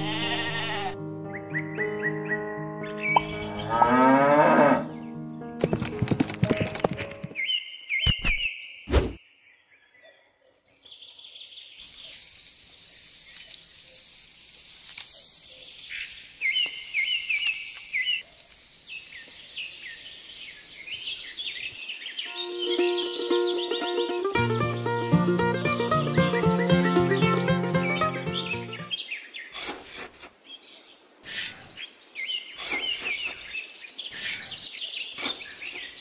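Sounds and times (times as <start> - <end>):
cow mooing: 3.7 - 5.0
faint hiss: 11.8 - 21.7
high bird chirps: 21.6 - 29.0.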